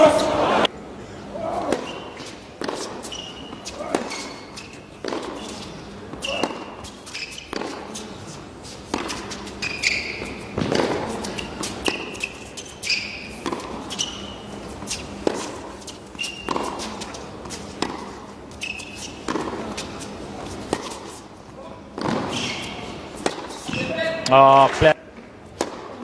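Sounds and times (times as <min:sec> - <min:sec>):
tennis ball bouncing: 0:01.6 - 0:21.2, 0:21.9 - 0:23.9, 0:25.6 - 0:26.0
tennis racket hitting ball: 0:01.6 - 0:21.2, 0:21.9 - 0:23.9, 0:25.6 - 0:26.0
sneaker squeaks on court: 0:01.8 - 0:08.1, 0:09.0 - 0:19.5, 0:22.0 - 0:23.0.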